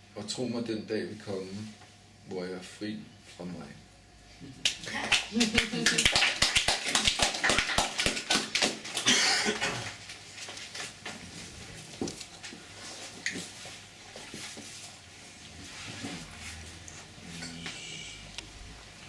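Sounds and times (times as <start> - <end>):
people snapping fingers: 4.6 - 9.1.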